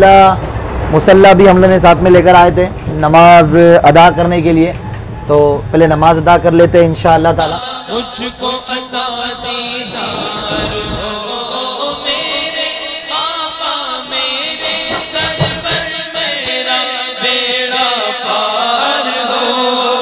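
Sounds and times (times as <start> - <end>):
voice chanting a song: 7.4 - 20.0.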